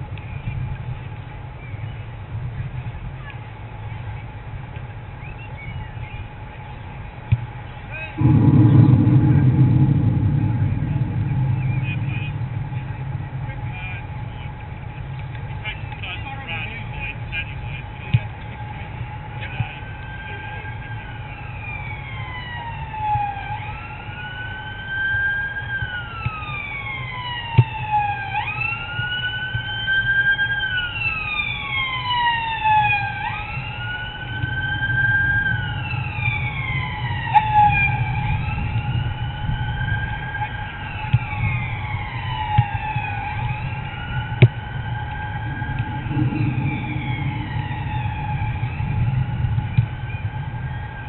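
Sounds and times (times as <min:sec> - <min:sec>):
steady low rumble: 0:00.0 - 0:22.3, 0:32.7 - 0:51.0
emergency siren wailing: 0:05.0 - 0:51.0
second siren sweeping down: 0:08.0 - 0:16.0, 0:18.6 - 0:51.0.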